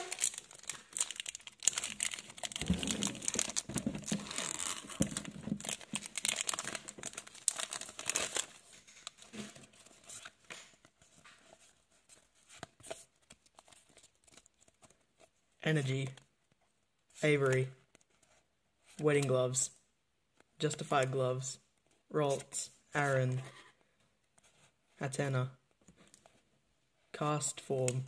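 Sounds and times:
foil wrapper tearing and crinkling: 0.0 - 8.6
cards clicking and rustling: 0.0 - 11.7.

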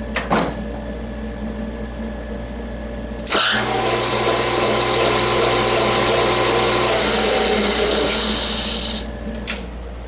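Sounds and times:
steady machine hum: 0.0 - 10.0
metal lathe spinning up: 3.3 - 9.1.

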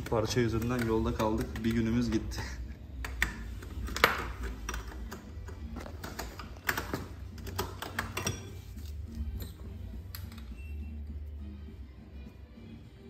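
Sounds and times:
hand tools and metal parts clinking: 6.4 - 9.8.

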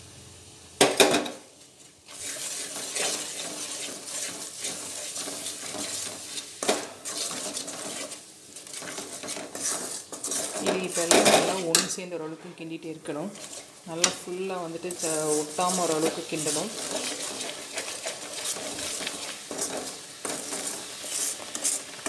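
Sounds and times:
spoon stirring thick syrup: 2.1 - 12.0, 13.3 - 22.0
syrup bubbling: 13.4 - 22.0.

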